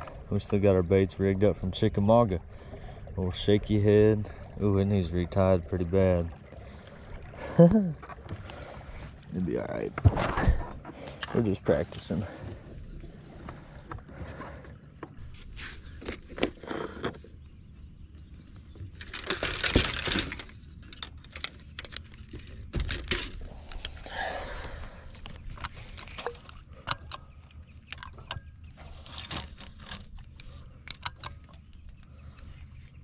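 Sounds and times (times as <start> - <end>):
rustling scrape: 15.2 - 17.3.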